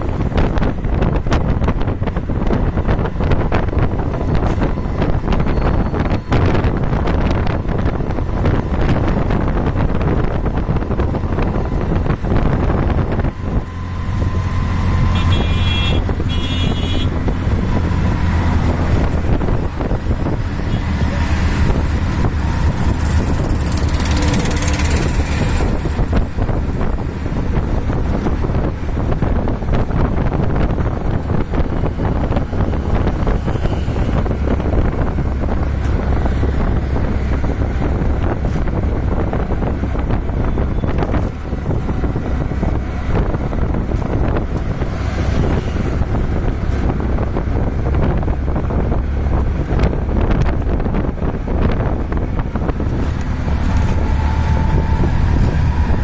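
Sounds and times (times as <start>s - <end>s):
auto rickshaw engine running: 0.0s - 56.0s
passing traffic: 0.0s - 56.0s
wind on microphone: 0.0s - 56.0s
vehicle horn: 15.0s - 17.2s.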